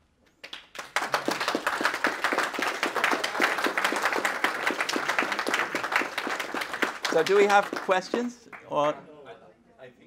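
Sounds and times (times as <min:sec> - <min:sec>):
audience applauding: 0:00.4 - 0:08.9.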